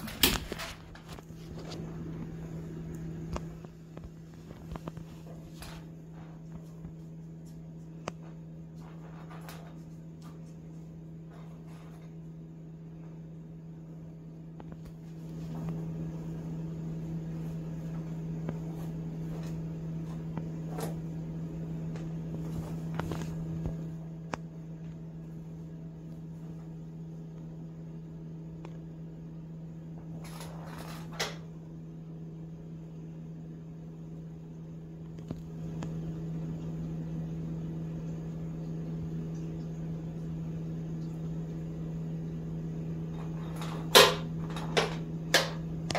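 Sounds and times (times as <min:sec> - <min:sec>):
appliance hum: 0:00.0 - 0:45.9.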